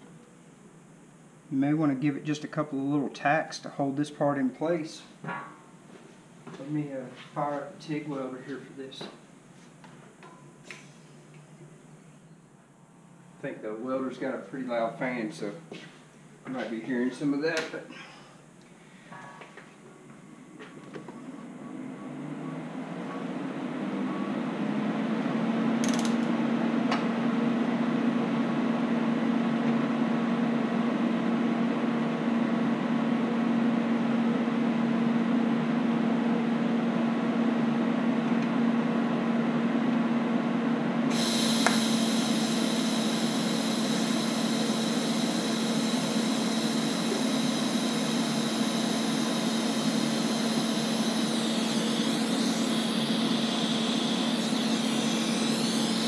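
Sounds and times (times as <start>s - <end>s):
high steady whine: 0.0s - 56.0s
welder cooling fan humming: 0.0s - 56.0s.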